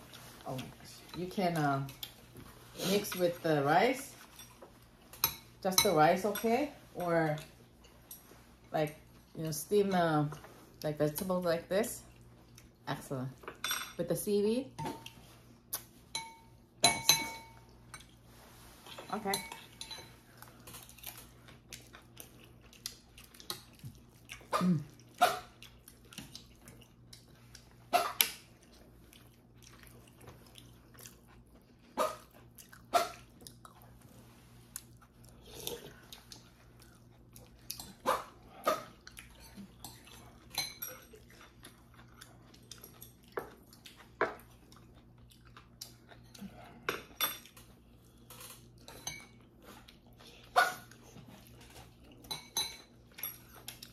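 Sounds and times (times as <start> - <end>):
utensils clinking on ceramic bowl: 13.5 - 14.0, 16.1 - 18.1, 19.0 - 21.0, 52.2 - 53.8
person chewing: 20.2 - 52.3, 52.9 - 53.9.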